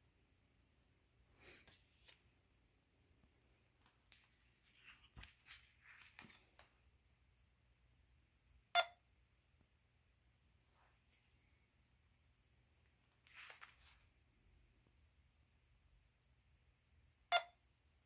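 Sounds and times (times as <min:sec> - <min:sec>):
paper rustling and sliding: 0:01.4 - 0:02.3, 0:04.0 - 0:06.7, 0:13.2 - 0:14.1.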